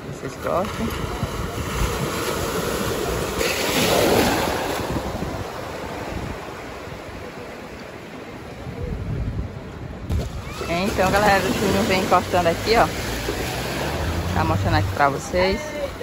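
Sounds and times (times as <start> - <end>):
sea surf washing onto beach: 0.0 - 16.0
wind on microphone: 0.0 - 16.0.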